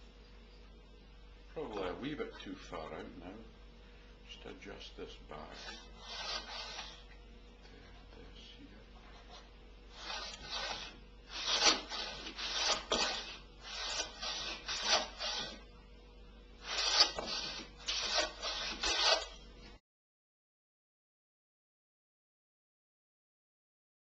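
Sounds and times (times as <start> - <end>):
hand plane rasping over wood: 5.5 - 7.0, 10.0 - 15.6, 16.6 - 19.4.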